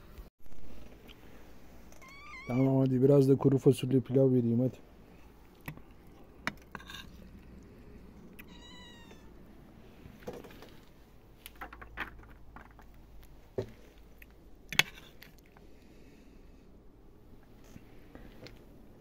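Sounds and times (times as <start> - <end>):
kitten meowing: 2.0 - 2.7, 8.4 - 9.4.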